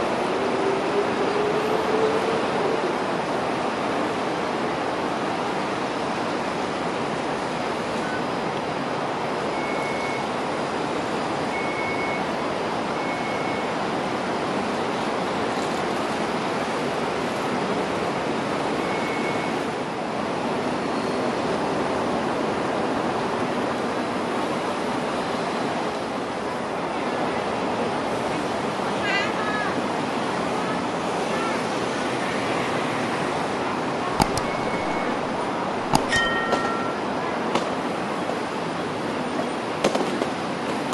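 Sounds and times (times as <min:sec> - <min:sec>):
rushing outdoor background noise: 0:00.0 - 0:40.9
short high chirps: 0:35.8 - 0:37.2.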